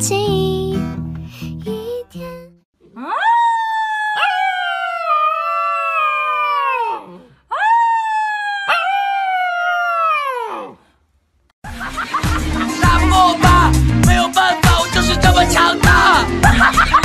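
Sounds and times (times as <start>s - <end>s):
puppy howling: 2.9s - 10.8s.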